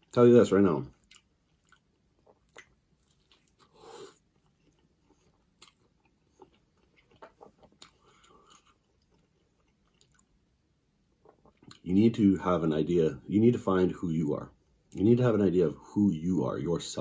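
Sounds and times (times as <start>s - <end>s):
chewing with soft mouth clicks: 0.8s - 11.9s.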